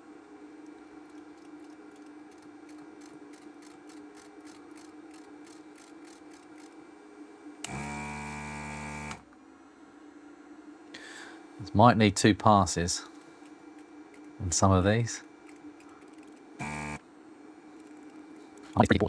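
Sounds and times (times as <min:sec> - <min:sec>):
steady low hum: 0:00.0 - 0:19.0
vacuum pump buzzing: 0:07.6 - 0:09.3, 0:16.6 - 0:17.0.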